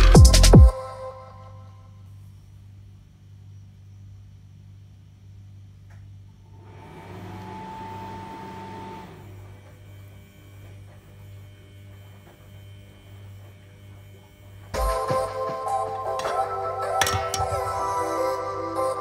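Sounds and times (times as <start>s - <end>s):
low electrical hum: 0.0s - 14.8s.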